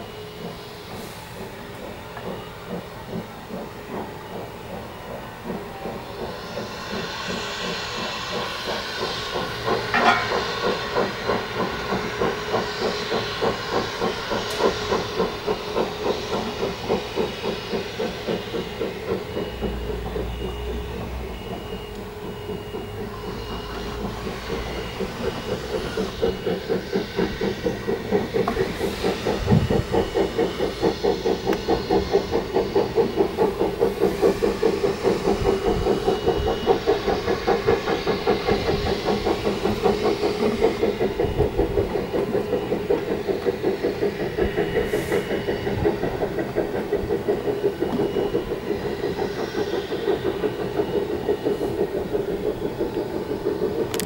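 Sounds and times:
steam locomotive chuffing: 0:00.0 - 0:54.0.

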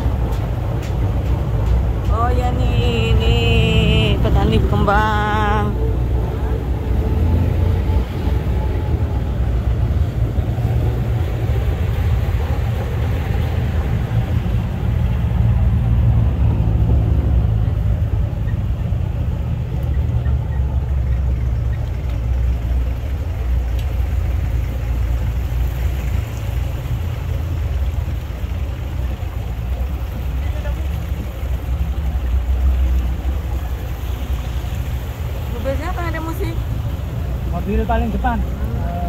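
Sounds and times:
car engine and road noise: 0:00.0 - 0:39.0.

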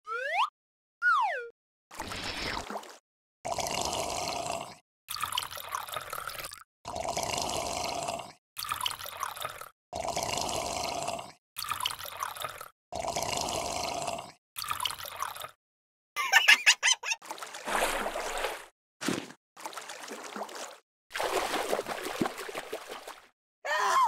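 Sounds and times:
water pouring: 0:05.1 - 0:06.6, 0:08.6 - 0:09.7, 0:11.6 - 0:12.7, 0:14.6 - 0:15.6, 0:17.2 - 0:18.7, 0:19.6 - 0:23.3.

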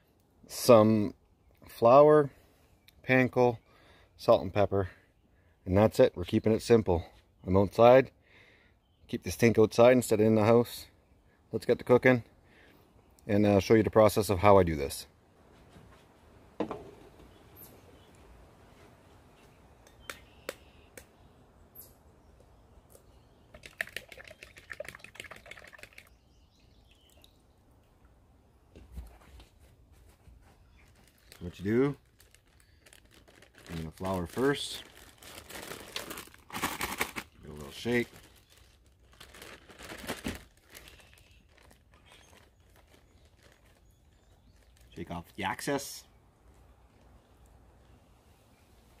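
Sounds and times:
plastic bag crinkling: 0:30.7 - 0:45.2.

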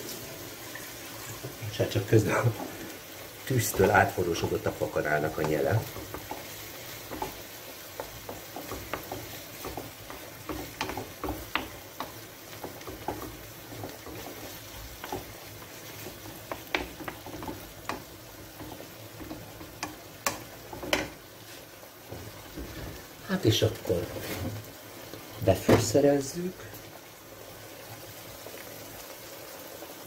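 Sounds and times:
meat sizzling: 0:00.0 - 0:30.0
wooden spoon scraping a pan: 0:01.0 - 0:23.2, 0:23.8 - 0:24.7.

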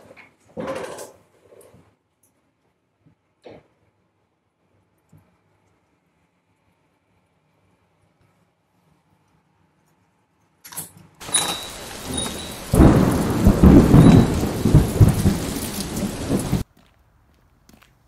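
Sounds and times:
rain hissing: 0:11.2 - 0:16.6
wind rumbling on microphone: 0:11.2 - 0:16.6.

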